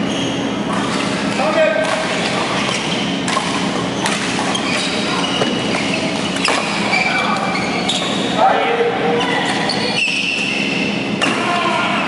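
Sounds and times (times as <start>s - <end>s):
shoes squeaking on court: 0.0s - 8.4s, 9.2s - 11.1s
racket hitting shuttlecock: 0.7s - 4.5s.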